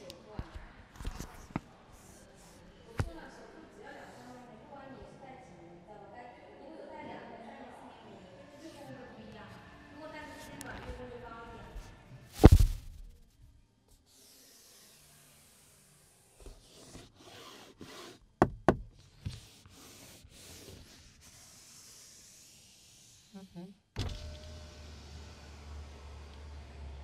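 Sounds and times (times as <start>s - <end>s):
rubbing over door panel: 14.1s - 23.4s
knock on car armrest: 18.4s - 18.9s
power window motor humming: 24.0s - 27.0s.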